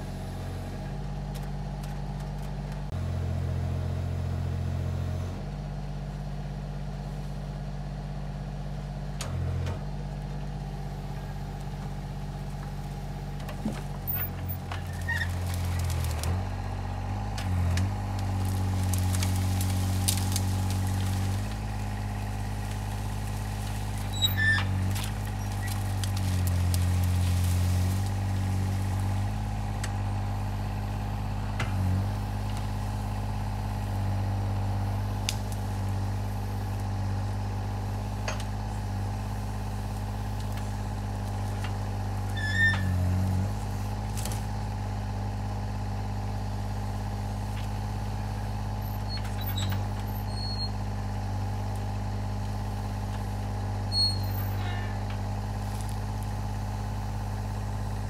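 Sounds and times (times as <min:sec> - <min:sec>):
diesel engine running: 0:00.0 - 0:58.0
hydraulic crane working: 0:09.2 - 0:58.0
branches cracking: 0:13.5 - 0:45.0, 0:55.0 - 0:58.0.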